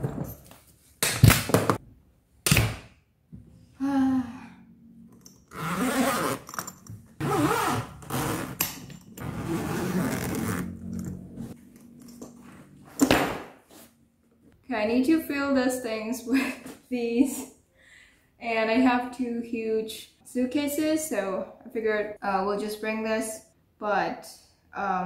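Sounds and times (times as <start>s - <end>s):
zipper rasping open: 5.2s - 12.5s.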